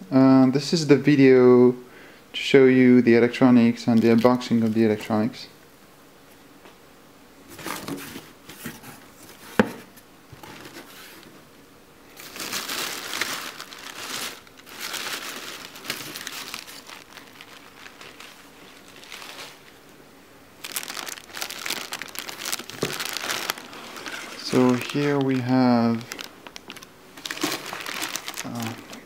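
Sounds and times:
packing paper crinkling: 0:03.8 - 0:05.1, 0:12.1 - 0:19.9, 0:20.6 - 0:29.0.

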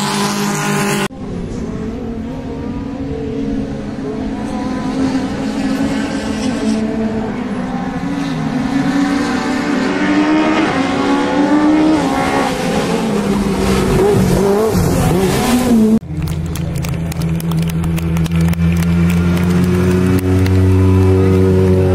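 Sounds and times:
car engines revving: 0:00.0 - 0:21.9
engine crackling: 0:13.6 - 0:21.9.

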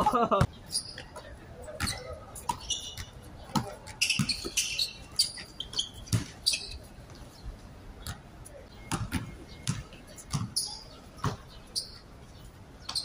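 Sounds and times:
sneakers squeaking: 0:00.0 - 0:13.0
basketball bouncing on hard court: 0:01.8 - 0:04.8, 0:08.9 - 0:10.6.

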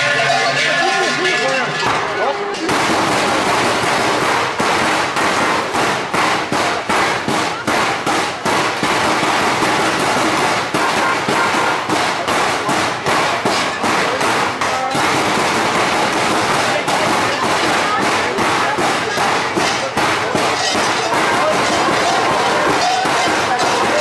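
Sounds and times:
large bells clanking: 0:00.0 - 0:03.1, 0:19.0 - 0:24.0.

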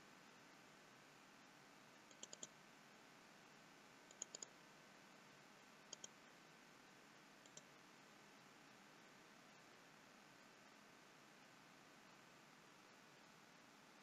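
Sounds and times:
low hiss: 0:00.0 - 0:14.0
computer mouse clicks: 0:02.1 - 0:02.6, 0:04.1 - 0:04.6, 0:05.9 - 0:06.2, 0:07.4 - 0:07.7.

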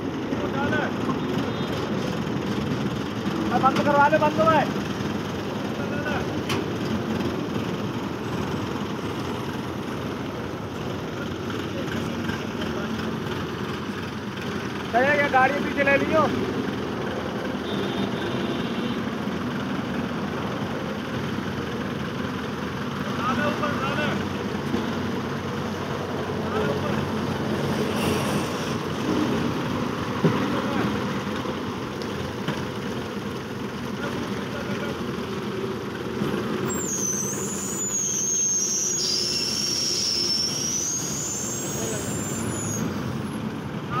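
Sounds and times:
heavy engine idling: 0:00.0 - 0:44.0
high-pitched squeal: 0:36.5 - 0:43.4.

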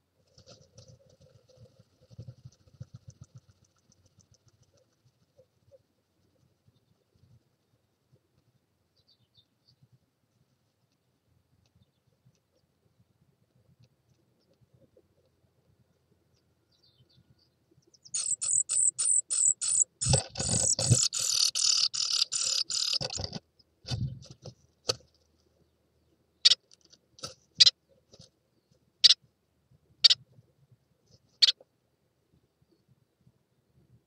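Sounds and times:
wing fluttering thumps: 0:00.2 - 0:05.2, 0:19.4 - 0:25.0
birds' high thin calls: 0:18.0 - 0:23.4.

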